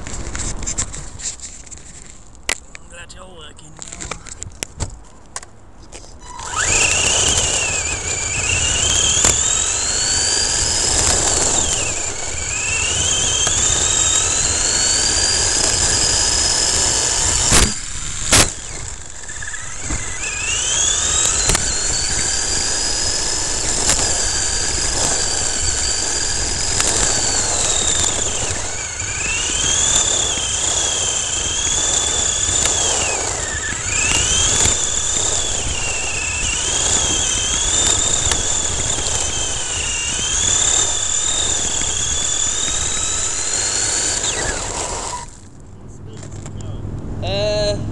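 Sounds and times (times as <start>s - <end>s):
tyres on gravel: 0.0s - 46.8s
electric toy truck motor whining: 6.2s - 45.5s
sharp knocks: 17.5s - 18.6s.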